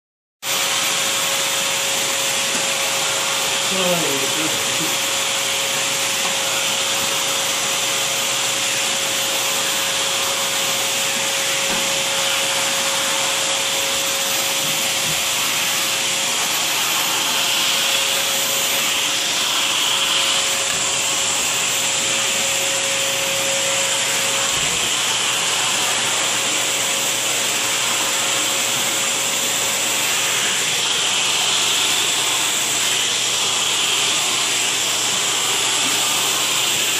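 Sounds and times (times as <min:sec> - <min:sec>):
vacuum cleaner running: 0:00.4 - 0:36.9
vacuum tool drawn through fur: 0:00.5 - 0:36.9.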